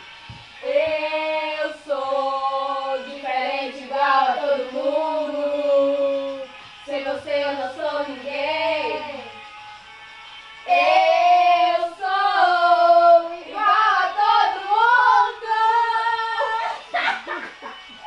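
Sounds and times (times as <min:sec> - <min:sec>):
young female voice singing: 0:00.6 - 0:09.4, 0:10.7 - 0:17.3.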